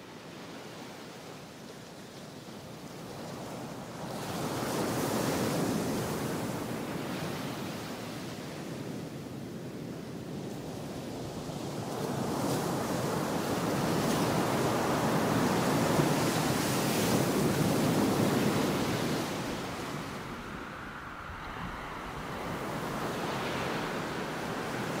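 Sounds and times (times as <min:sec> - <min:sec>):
ocean waves washing: 0:11.1 - 0:25.0.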